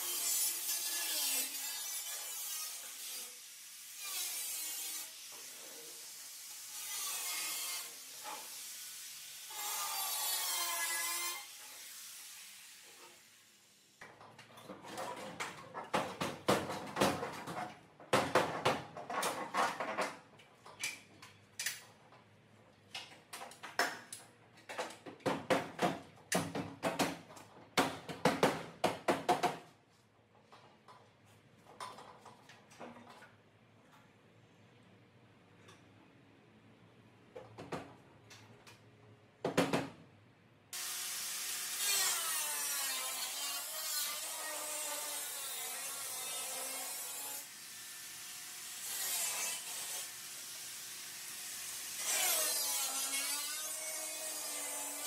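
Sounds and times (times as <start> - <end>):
angle grinder on sheet metal: 0.0 - 13.3, 40.8 - 55.0.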